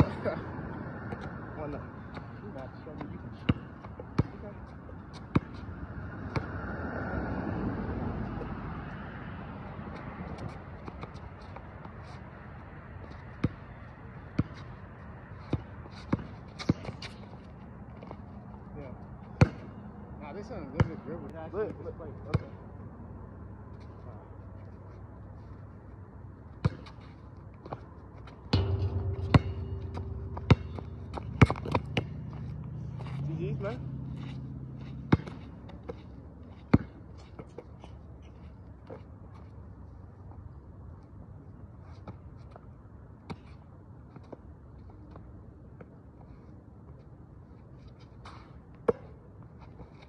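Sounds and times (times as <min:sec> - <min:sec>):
vehicle passing: 0:00.0 - 0:03.4, 0:05.5 - 0:11.3, 0:29.0 - 0:36.3
basketball bouncing on court: 0:03.4 - 0:05.6, 0:14.3 - 0:14.7, 0:15.5 - 0:17.0, 0:19.4 - 0:19.8, 0:22.3 - 0:22.5, 0:28.5 - 0:33.1, 0:35.1 - 0:35.4, 0:36.7 - 0:37.0
ball clanging off metal rim: 0:28.5 - 0:33.2.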